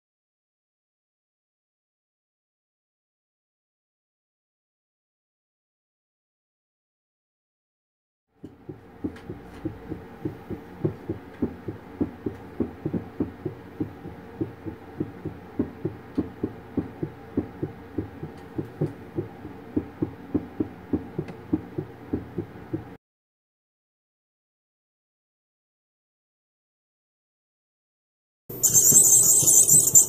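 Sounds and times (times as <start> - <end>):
doppler heartbeat pulses: 8.4 - 23.0.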